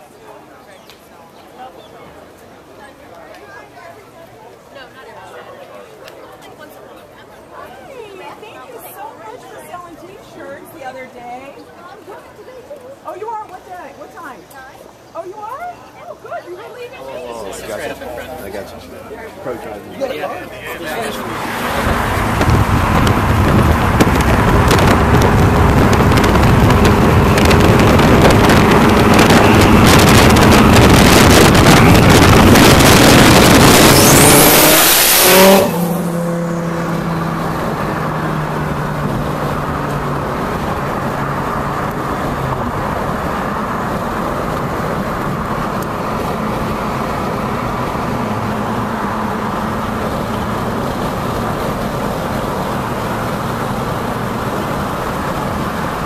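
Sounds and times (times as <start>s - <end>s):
road noise inside car: 17.4s - 56.0s
car engine accelerating hard: 17.5s - 56.0s
rising engine whine: 20.4s - 56.0s
wind on microphone: 21.7s - 36.1s.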